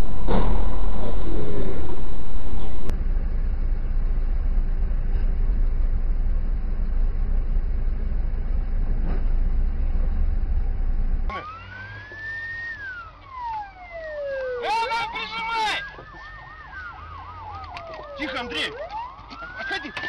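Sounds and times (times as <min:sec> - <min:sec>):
car engine and road rumble: 0:00.0 - 0:20.0
police siren wailing: 0:11.3 - 0:20.0.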